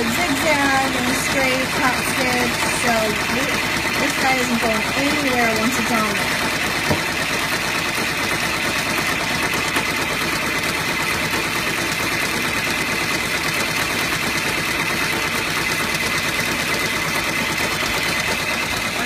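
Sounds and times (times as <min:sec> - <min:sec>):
embroidery machine chatter: 0:00.0 - 0:19.0.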